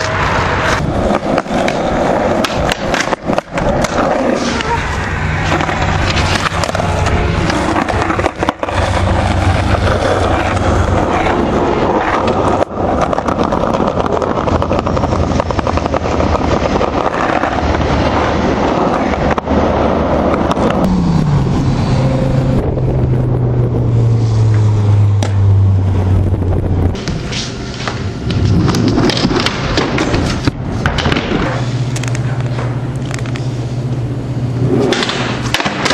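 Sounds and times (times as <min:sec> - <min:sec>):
skateboard clacks: 0:00.0 - 0:20.9, 0:27.0 - 0:33.4, 0:34.7 - 0:35.9
low hum: 0:00.0 - 0:35.9
skateboard wheels rolling on concrete: 0:00.0 - 0:35.9.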